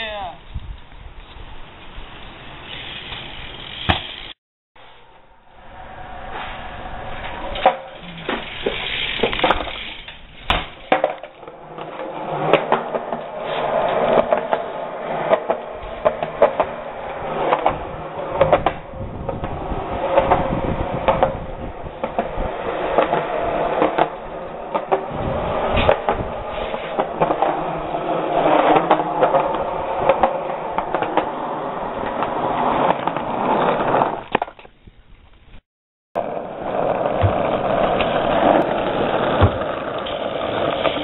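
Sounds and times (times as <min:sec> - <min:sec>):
bike tyres rumbling on concrete: 0:00.6 - 0:04.4, 0:05.9 - 0:35.6, 0:36.2 - 0:41.0
bike rattling: 0:01.8 - 0:05.0, 0:07.2 - 0:32.0.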